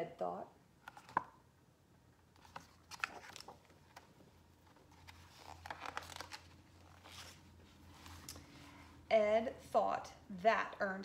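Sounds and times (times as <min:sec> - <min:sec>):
book page rustling: 0:00.8 - 0:01.4, 0:02.3 - 0:08.7.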